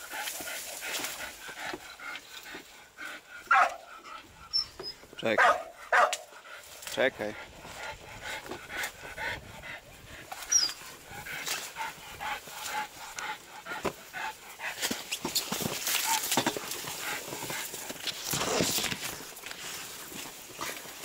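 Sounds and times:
rustling and crackling of leaves: 0.0 - 3.0, 9.9 - 21.0.

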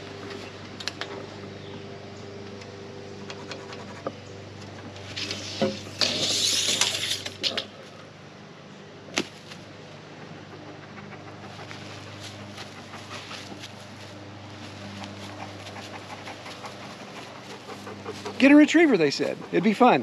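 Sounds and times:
hand tools clicking and scraping on wood: 10.7 - 20.0.

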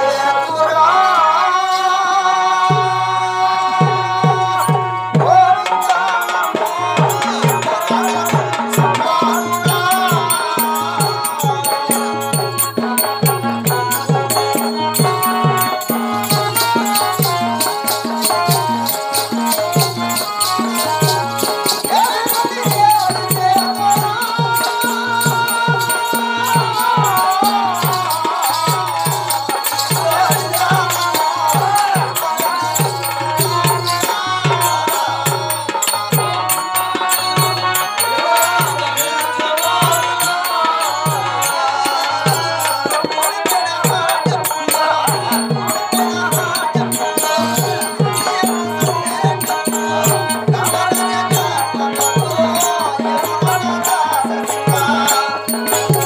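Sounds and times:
steady drum beat: 3.8 - 56.0
wavering melody: 5.8 - 41.7.

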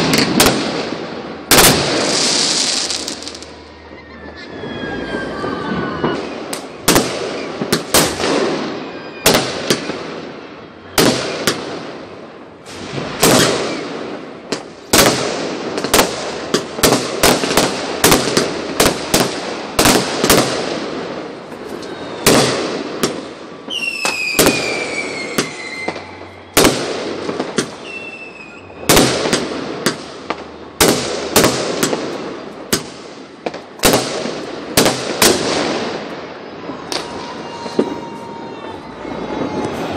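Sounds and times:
fireworks bangs and crackling: 0.0 - 39.9
falling firework whistle: 2.0 - 11.4, 12.8 - 14.0, 21.5 - 29.0, 36.3 - 39.9.

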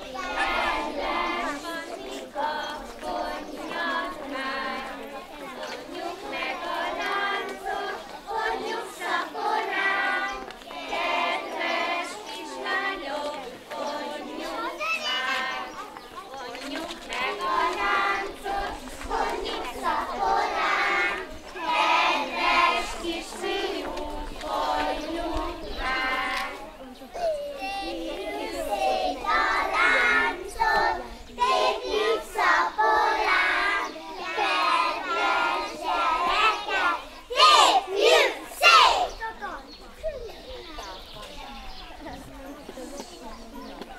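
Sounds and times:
children singing in unison: 0.0 - 15.9, 17.0 - 26.7, 27.7 - 39.2.

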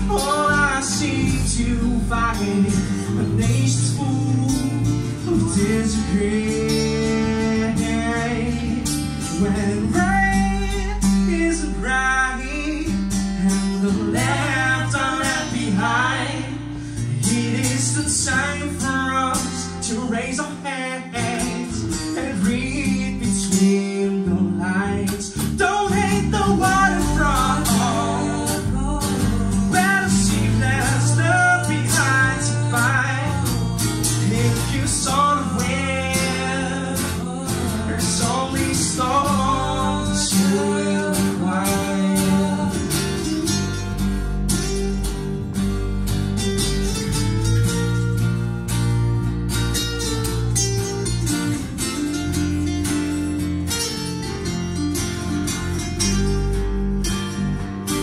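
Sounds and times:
person singing: 0.0 - 43.3
strummed acoustic guitar: 0.0 - 58.0.

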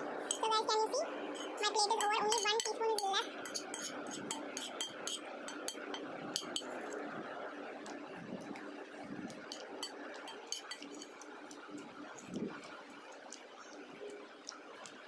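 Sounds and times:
background noise: 0.0 - 15.0
metal spoon scraping ceramic plate: 1.3 - 6.8, 9.5 - 11.2.

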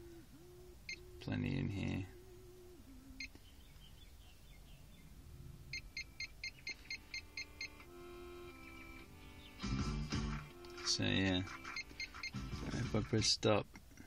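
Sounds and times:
faint music: 5.7 - 13.6
touchscreen key beeps: 11.4 - 12.4.

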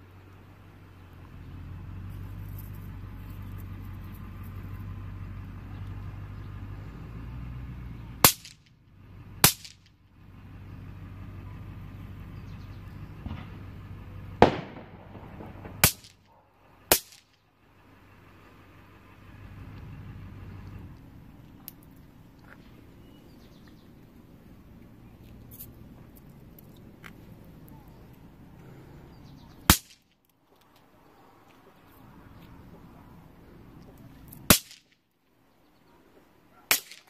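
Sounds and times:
steady low rumble: 0.0 - 37.0
snap pops cracking on concrete: 8.2 - 8.8, 9.4 - 10.0, 14.4 - 16.3, 16.9 - 17.4, 29.7 - 30.8, 34.3 - 35.0, 36.7 - 37.0.

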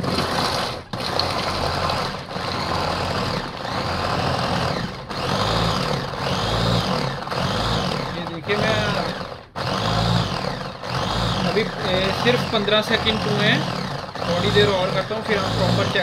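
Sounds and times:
electric vegetable chopper whirring: 0.0 - 16.0.

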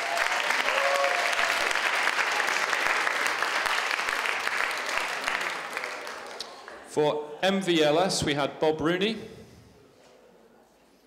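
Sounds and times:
audience applause: 0.0 - 6.9.

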